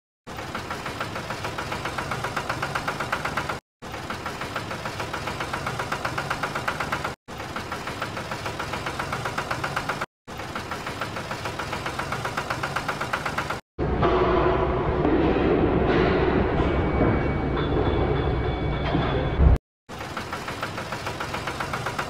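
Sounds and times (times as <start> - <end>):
engine running with knocking pulse: 0.3 - 13.6, 19.9 - 22.0.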